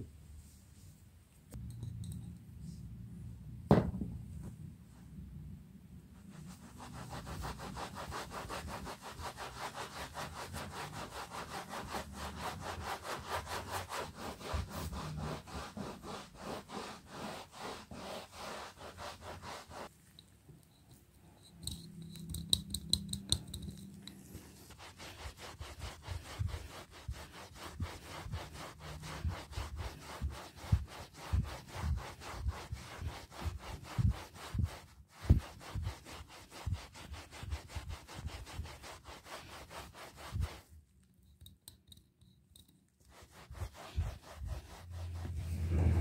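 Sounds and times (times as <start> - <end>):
cloth scrubbing carpet: 6.2 - 19.9, 24.3 - 40.7, 43.1 - 46.0.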